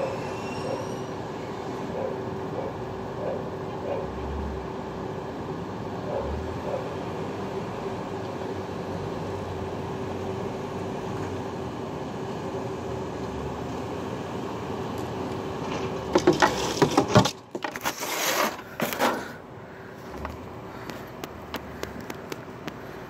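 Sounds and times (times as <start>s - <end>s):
loud irregular knocks and rattles: 15.7s - 17.9s.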